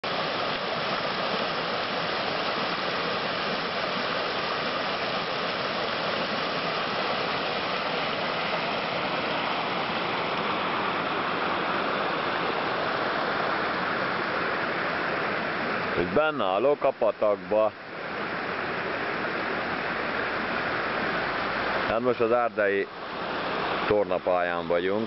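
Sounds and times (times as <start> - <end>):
stream water rushing over stones: 0.0 - 25.0.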